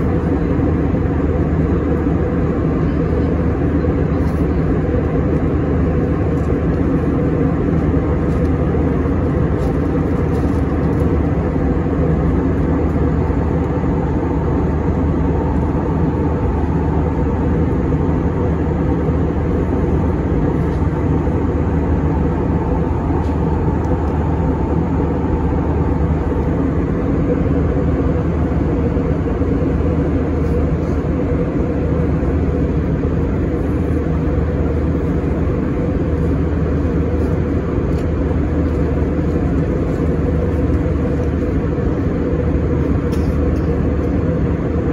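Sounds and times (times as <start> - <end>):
airliner cabin engine drone: 0.0 - 44.9.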